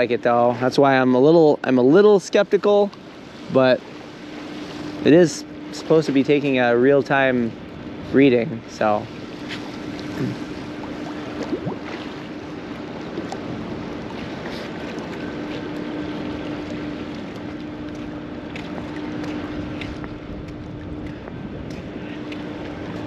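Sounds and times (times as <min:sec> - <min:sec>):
low hum: 0:00.0 - 0:23.0
waves splashing against wall: 0:01.8 - 0:23.0
wind on microphone: 0:07.4 - 0:23.0.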